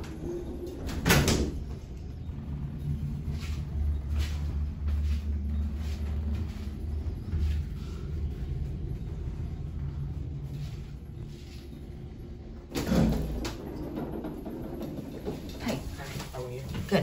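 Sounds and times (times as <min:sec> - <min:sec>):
elevator doors banging shut: 0:00.0 - 0:02.3, 0:12.6 - 0:16.4
hydraulic drive rumble: 0:00.0 - 0:16.2.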